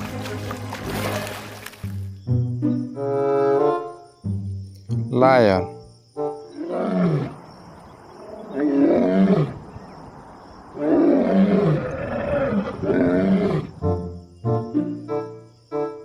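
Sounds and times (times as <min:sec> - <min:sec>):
lion roaring: 0:06.6 - 0:07.4, 0:08.2 - 0:09.6, 0:10.7 - 0:13.8.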